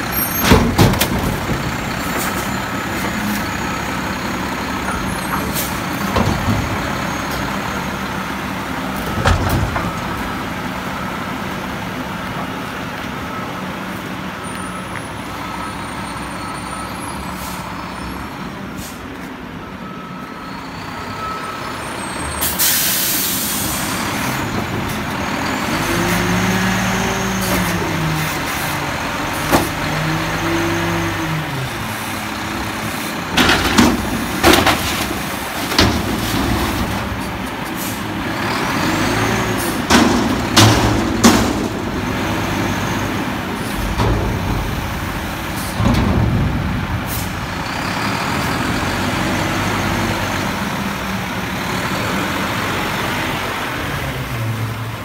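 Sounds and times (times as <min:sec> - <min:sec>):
diesel engine revving: 0:20.7 - 0:55.0
loud metallic bangs: 0:38.8 - 0:48.4.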